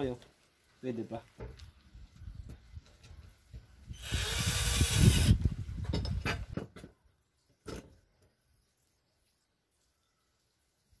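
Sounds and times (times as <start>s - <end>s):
cordless drill driving screw: 3.9s - 5.4s.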